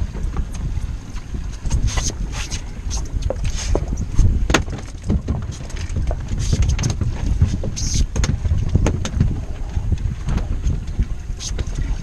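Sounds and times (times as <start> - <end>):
wind buffeting microphone: 0.0 - 12.0
knocks on boat: 4.5 - 9.4.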